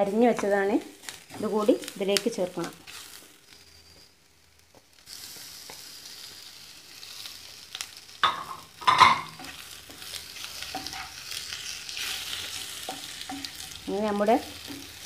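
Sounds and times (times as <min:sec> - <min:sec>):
filling sizzling in frying pan: 0:00.0 - 0:15.0
spatula scraping pan: 0:08.9 - 0:15.0.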